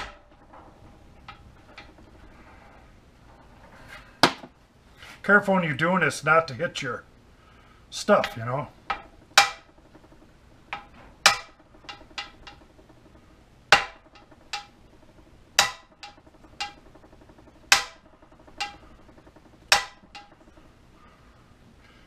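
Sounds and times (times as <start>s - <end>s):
hammer striking metal: 0.0s - 0.6s, 8.2s - 20.7s.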